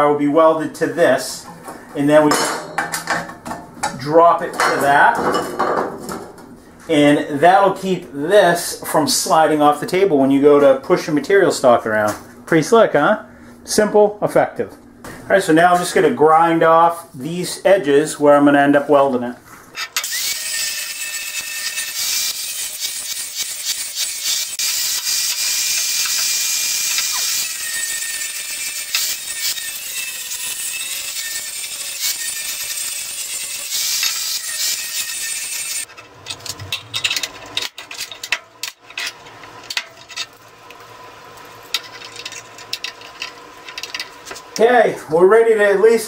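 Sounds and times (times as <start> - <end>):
angle grinder grinding steel: 19.9 - 40.4.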